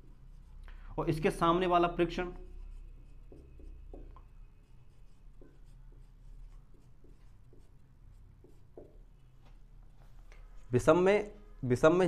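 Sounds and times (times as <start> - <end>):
pen scratching handwriting: 0.0 - 0.6, 2.4 - 9.1.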